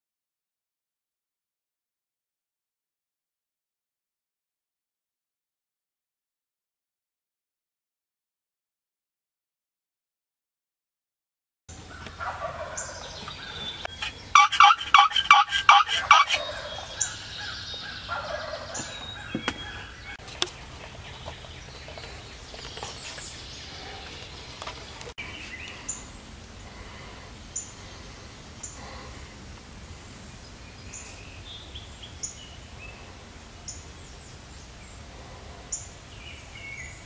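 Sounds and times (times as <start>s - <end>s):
songbirds chirping: 11.7s - 37.0s
turkey gobbling: 11.9s - 20.2s.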